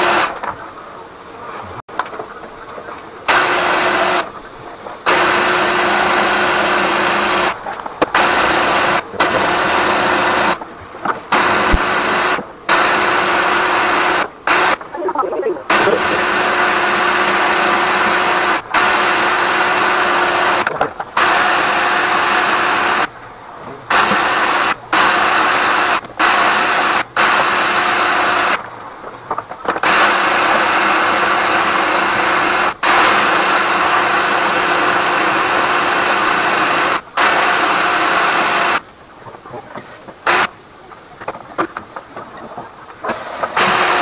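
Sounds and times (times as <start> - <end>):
drain cleaning machine whining: 5.0 - 7.6, 8.2 - 10.6, 15.6 - 23.1, 43.1 - 44.0.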